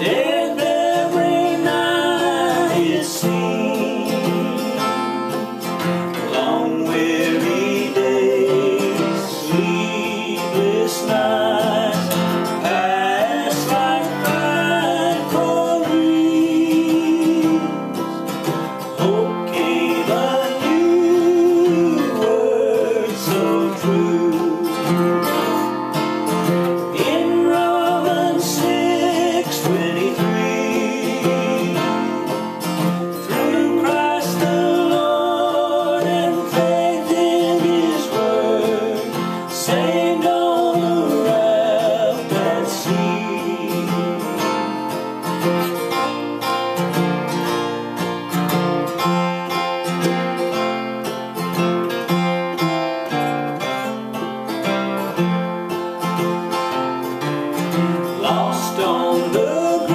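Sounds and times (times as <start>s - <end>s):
two men singing in harmony: 0.0s - 25.8s, 26.4s - 46.0s, 58.0s - 59.9s
acoustic guitars strumming: 0.0s - 59.9s.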